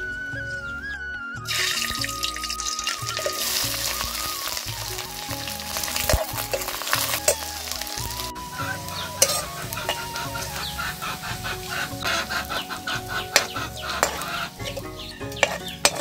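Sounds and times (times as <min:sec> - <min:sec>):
ladle scraping wok: 0:01.5 - 0:16.0
onions sizzling in hot oil: 0:01.5 - 0:16.0
metal clinks on pan: 0:09.2 - 0:10.0, 0:13.3 - 0:16.0.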